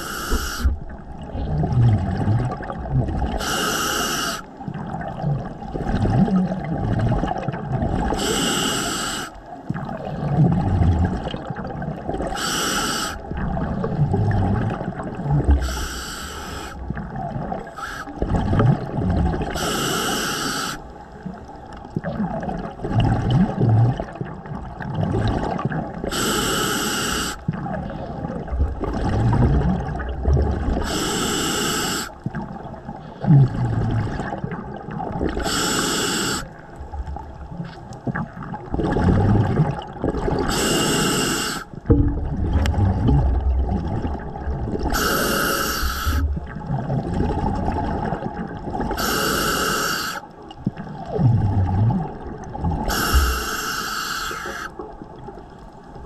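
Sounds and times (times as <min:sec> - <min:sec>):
low underwater rumbling: 0:00.0 - 0:03.4, 0:04.4 - 0:08.2, 0:09.4 - 0:12.4, 0:13.2 - 0:19.6, 0:20.8 - 0:26.1, 0:27.4 - 0:31.2, 0:32.2 - 0:35.6, 0:36.5 - 0:40.6, 0:41.7 - 0:49.1, 0:50.3 - 0:53.8
exhaust bubbles bursting: 0:00.7 - 0:03.4, 0:04.6 - 0:08.2, 0:09.7 - 0:12.3, 0:13.3 - 0:15.7, 0:16.8 - 0:19.6, 0:22.0 - 0:26.0, 0:27.5 - 0:30.8, 0:36.8 - 0:40.5, 0:41.8 - 0:45.0, 0:46.1 - 0:49.0, 0:50.6 - 0:53.4.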